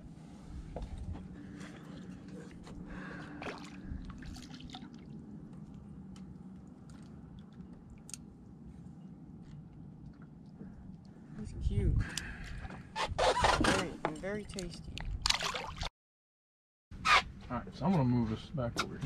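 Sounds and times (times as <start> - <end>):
water dripping and splashing: 3.4 - 8.2, 14.5 - 15.9.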